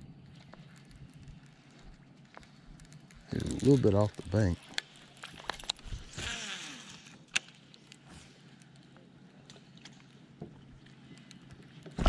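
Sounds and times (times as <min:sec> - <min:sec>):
faint reel retrieve: 0:03.3 - 0:08.7
fishing reel hiss: 0:06.1 - 0:07.4.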